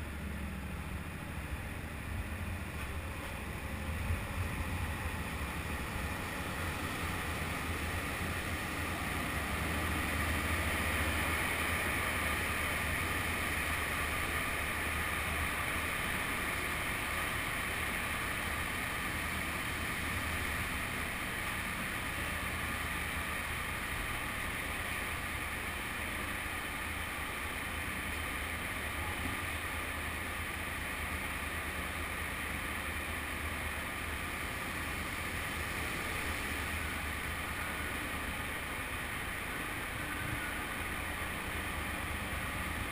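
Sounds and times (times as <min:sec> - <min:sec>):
motorcycle engine rumble: 0:00.0 - 0:42.9.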